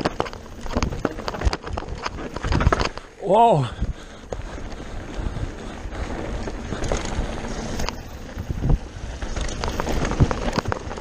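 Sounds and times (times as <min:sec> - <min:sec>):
bike knocks and clatters: 0:00.0 - 0:03.1, 0:07.8 - 0:11.0
bike tyres rolling on gravel: 0:00.0 - 0:11.0
wind buffeting microphone: 0:00.0 - 0:11.0.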